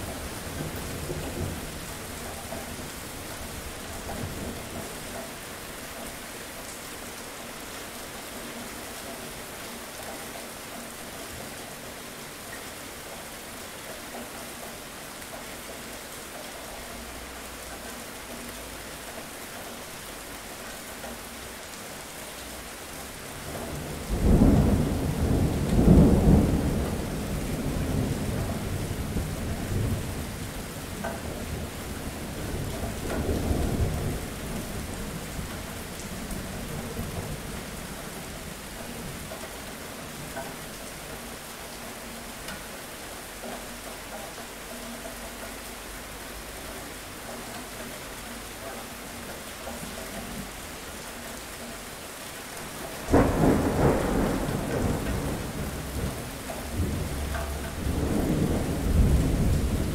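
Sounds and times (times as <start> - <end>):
steady rain: 0.0 - 59.9
thunder rumbling: 23.6 - 30.7, 53.0 - 59.9.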